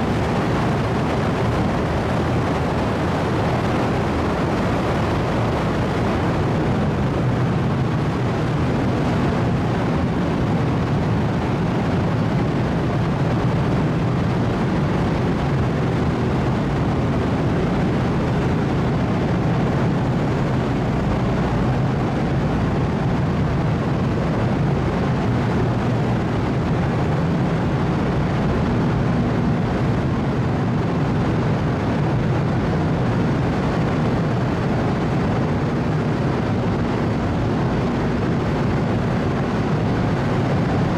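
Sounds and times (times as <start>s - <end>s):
ship machinery rumble: 0.0s - 40.9s.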